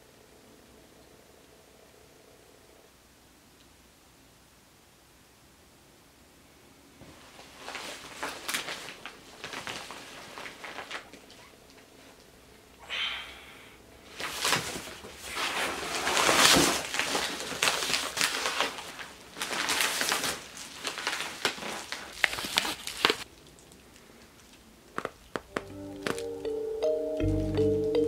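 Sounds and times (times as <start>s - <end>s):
paper mailers rustling: 7.2s - 12.2s, 14.1s - 23.3s.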